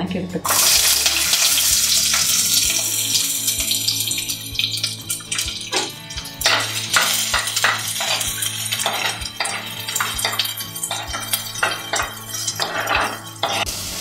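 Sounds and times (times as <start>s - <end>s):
spoon scraping clay pot: 5.8s - 13.7s.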